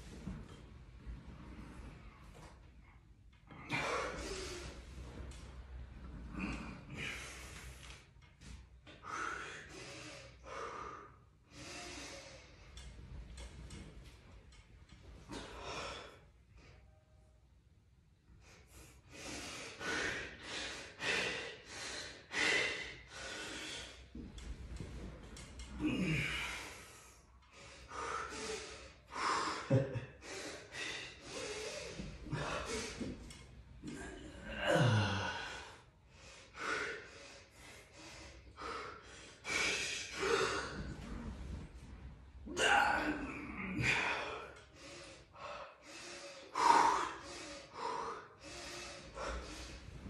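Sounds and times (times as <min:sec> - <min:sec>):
heavy rapid breathing: 0:03.4 - 0:16.8, 0:18.4 - 0:50.0
low grunt: 0:06.2 - 0:07.5, 0:25.6 - 0:26.8, 0:33.8 - 0:35.8, 0:42.4 - 0:44.5.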